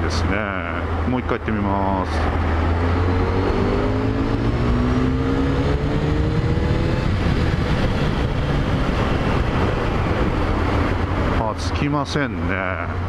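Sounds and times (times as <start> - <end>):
heavy wind: 0.0 - 13.0
road rumble: 0.0 - 13.0
motorcycle engine accelerating: 2.1 - 11.4.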